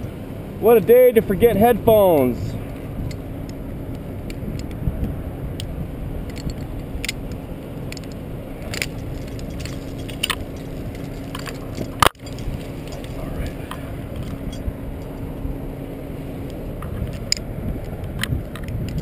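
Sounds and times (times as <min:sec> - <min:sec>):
low engine drone: 0:00.0 - 0:19.0
steel chain clinking and rattling: 0:06.2 - 0:15.4.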